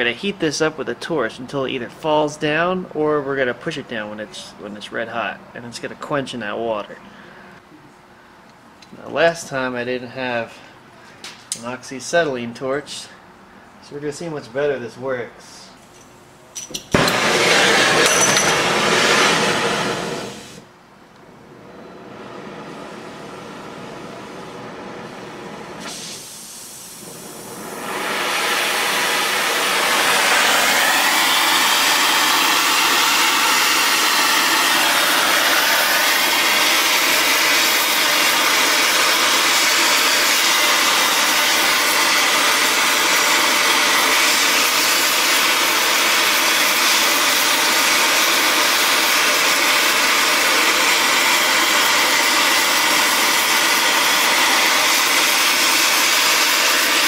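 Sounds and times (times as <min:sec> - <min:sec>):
torch flame hissing: 0:16.9 - 0:20.7, 0:21.5 - 0:57.0.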